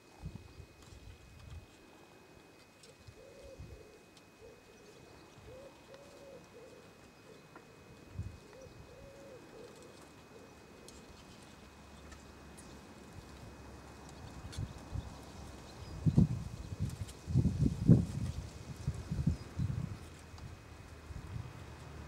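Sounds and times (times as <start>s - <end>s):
pigeon cooing: 2.8s - 11.4s.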